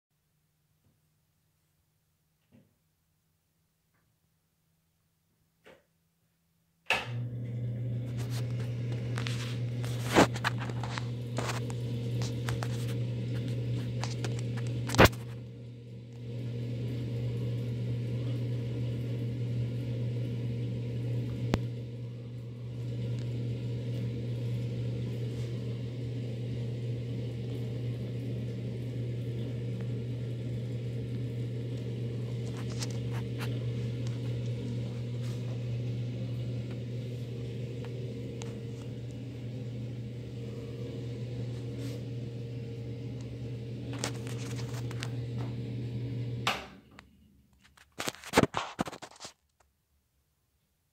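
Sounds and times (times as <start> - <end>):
exhaust fan humming: 6.9 - 47.2.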